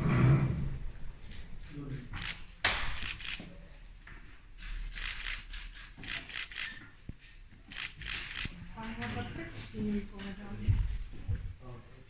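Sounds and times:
camera shutters clicking: 2.2s - 3.5s, 4.6s - 6.8s, 7.7s - 9.0s.

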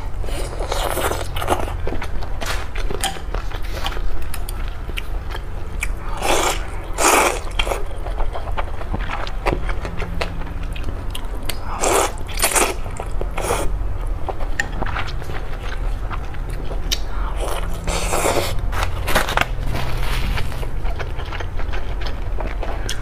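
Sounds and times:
wet chewing: 0.2s - 23.0s
slurping and biting: 5.8s - 9.1s, 16.9s - 19.4s.

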